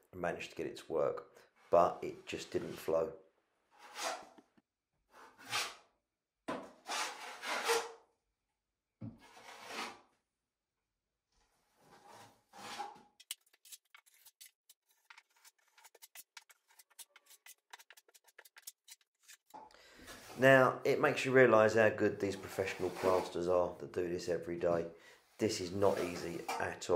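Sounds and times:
trowel scraping plaster: 3.7 - 4.5, 5.1 - 5.9, 6.8 - 8.0, 9.2 - 10.2, 11.5 - 20.4, 22.3 - 23.5, 25.7 - 26.7
short trowel scrapes and ticks: 13.2 - 19.6.

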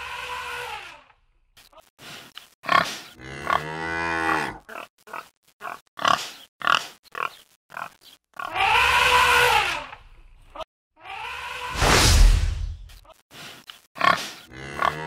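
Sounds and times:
wild boar grunting and squealing: 2.6 - 10.0, 14.0 - 15.0.

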